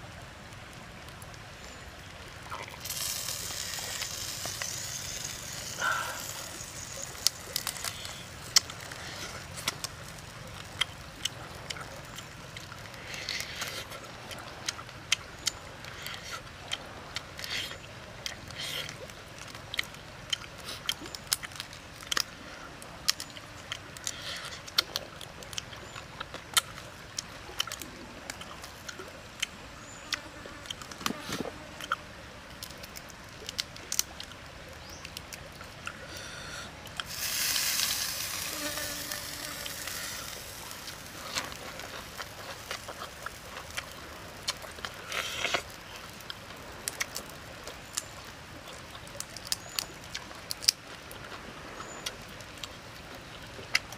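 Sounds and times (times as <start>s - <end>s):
shrimp shells cracking: 37.0s - 45.7s.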